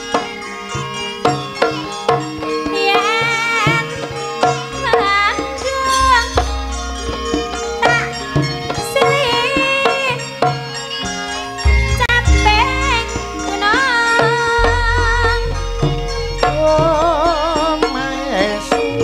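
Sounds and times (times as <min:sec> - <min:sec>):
wavering sliding melody: 0:03.5 - 0:10.1, 0:11.5 - 0:19.0
hand-drum strokes: 0:04.8 - 0:10.1, 0:11.6 - 0:19.0
sustained pitched tones: 0:05.3 - 0:09.5, 0:11.6 - 0:19.0.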